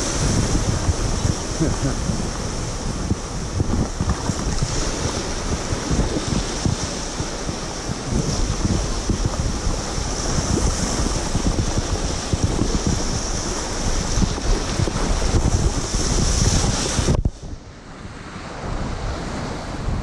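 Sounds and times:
small waves breaking: 0.0s - 20.0s
wind buffeting microphone: 0.0s - 20.0s.

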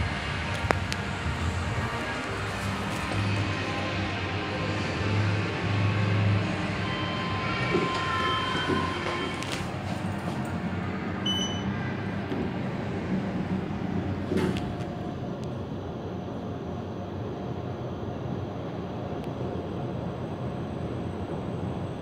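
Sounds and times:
elevator hum and rumble: 0.0s - 22.0s
elevator button beep: 6.8s - 10.3s, 11.2s - 11.8s
elevator doors closing knock: 6.9s - 15.1s.

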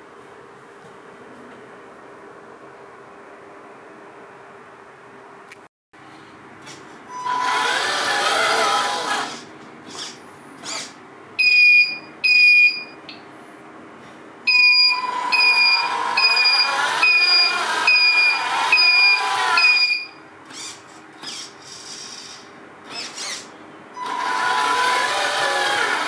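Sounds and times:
electric motor whine: 7.2s - 10.9s, 15.0s - 19.9s, 20.5s - 26.0s.

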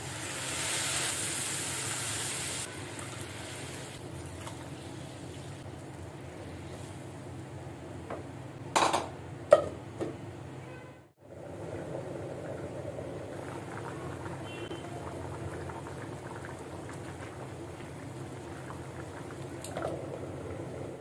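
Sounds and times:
pot bubbling on the boil: 11.2s - 21.0s.

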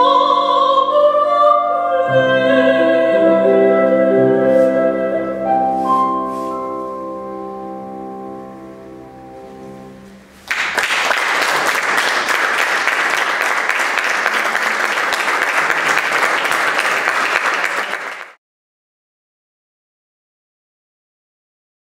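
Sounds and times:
soprano flute and piano chord: 2.0s - 10.2s
audience applauding: 10.4s - 18.4s.

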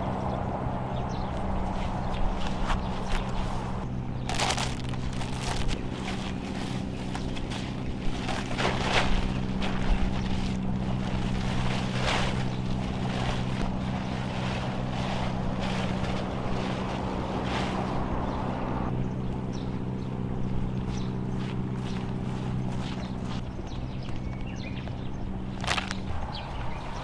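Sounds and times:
low engine hum: 0.0s - 27.0s
plastic tarp crackling: 4.3s - 18.0s.

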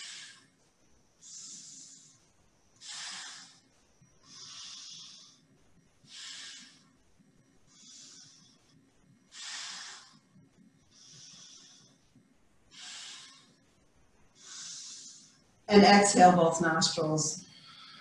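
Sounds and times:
air hissing through nostril: 0.0s - 0.5s, 1.2s - 2.2s, 2.8s - 5.4s, 6.0s - 6.9s, 9.3s - 10.2s, 12.7s - 13.6s, 14.4s - 15.4s.

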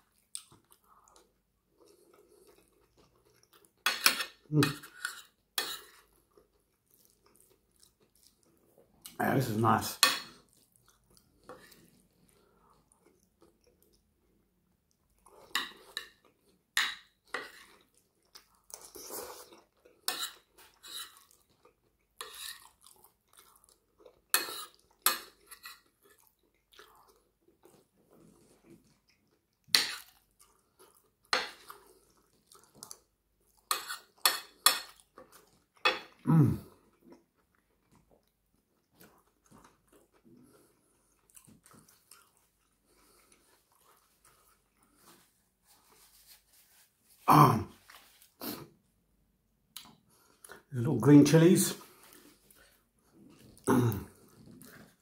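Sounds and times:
mouth chewing: 17.4s - 45.2s.

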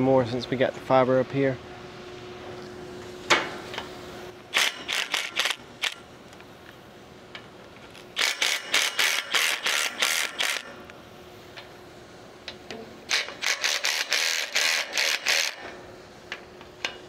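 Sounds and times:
ratchet wrench clicking: 4.6s - 6.0s, 8.2s - 10.7s, 13.1s - 15.6s.

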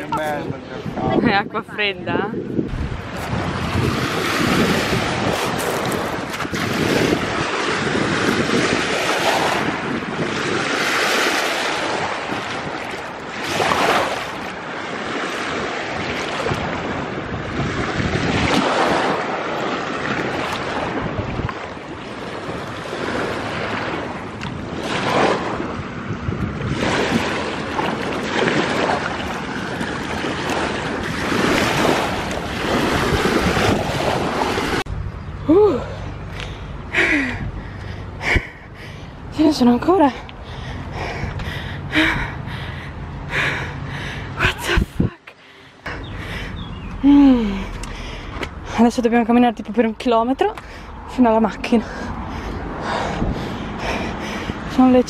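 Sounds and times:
wind buffeting microphone: 0.0s - 55.0s
water sloshing and splashing: 2.7s - 34.9s.

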